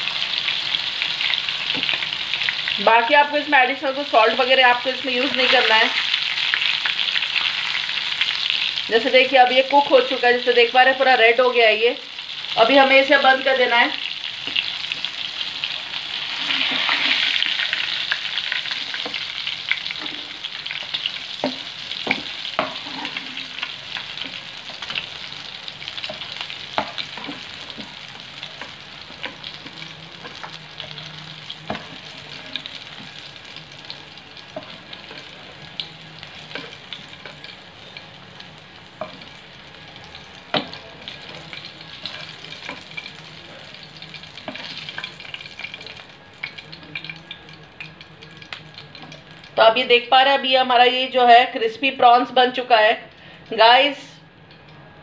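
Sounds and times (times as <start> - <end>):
prawns sizzling in hot oil: 0.0 - 50.2
metal spatula scraping pan: 22.1 - 24.2.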